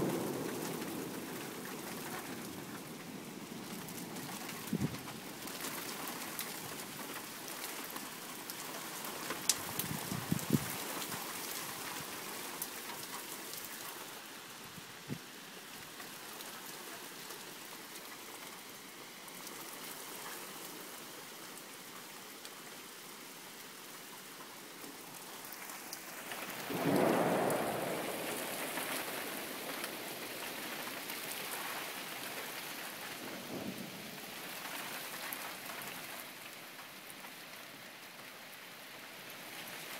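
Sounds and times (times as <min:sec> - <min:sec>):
sharp taps of raindrops: 0:00.0 - 0:14.2
steady rain falling: 0:00.0 - 0:39.9
roll of thunder: 0:26.5 - 0:30.0.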